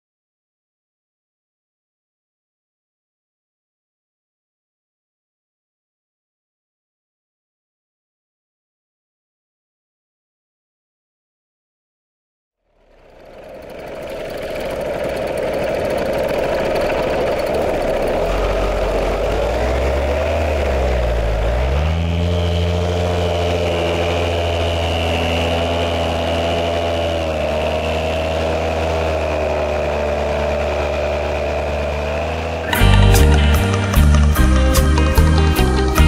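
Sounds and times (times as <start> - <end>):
vehicle engine running: 12.7 - 36.0.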